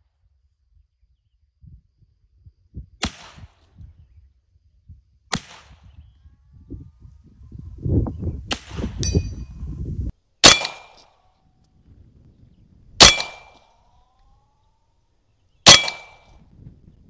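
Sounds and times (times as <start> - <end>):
air rifle shots: 3.0 - 3.7, 5.3 - 5.9, 8.4 - 9.2, 10.4 - 11.1, 13.0 - 13.8, 15.6 - 16.4
low rumble: 11.5 - 17.0.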